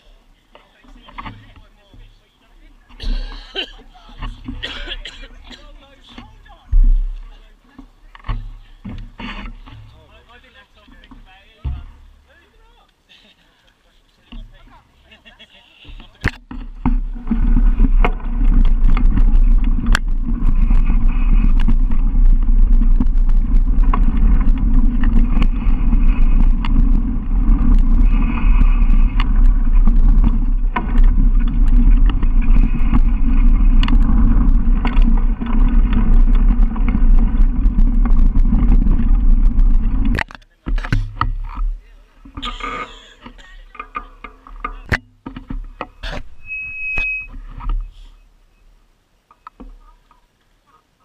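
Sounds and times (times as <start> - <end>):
bike rattling and knocking: 0.0 - 12.7, 15.9 - 46.8
wind rush over microphone: 16.3 - 40.2.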